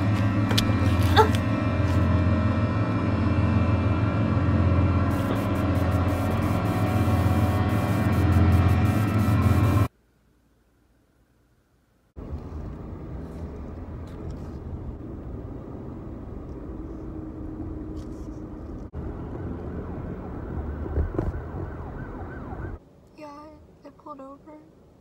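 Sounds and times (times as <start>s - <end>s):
car driving heard from cabin: 12.2s - 24.7s
woman's voice: 23.2s - 24.7s.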